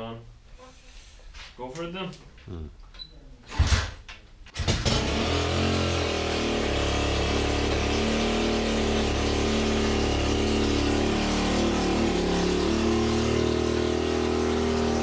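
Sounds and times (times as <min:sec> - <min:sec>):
motorbike kick-start: 0:04.6 - 0:05.4
motorbike engine running: 0:04.9 - 0:15.0.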